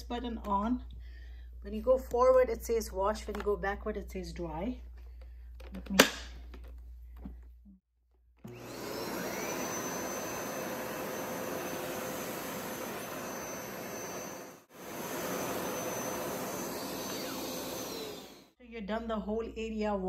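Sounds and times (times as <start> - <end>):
carpet cleaner motor whine: 8.4 - 18.6.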